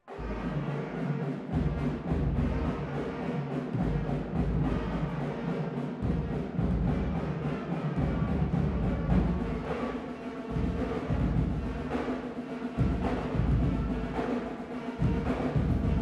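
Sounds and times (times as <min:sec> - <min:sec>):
drums keeping steady beat: 0:00.2 - 0:16.0.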